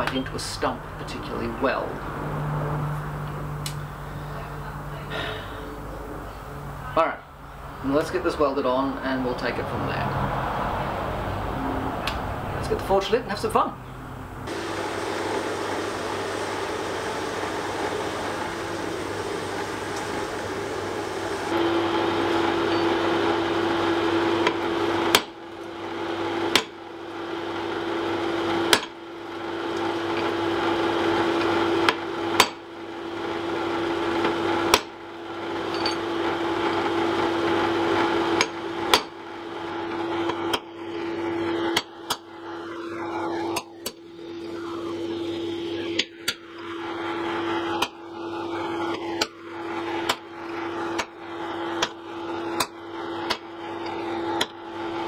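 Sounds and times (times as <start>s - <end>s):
steady hum: 0.0s - 23.3s, 38.4s - 55.0s
hammer striking iron on anvil: 28.7s - 28.9s, 35.7s - 36.0s, 38.4s - 39.2s, 41.7s - 42.2s.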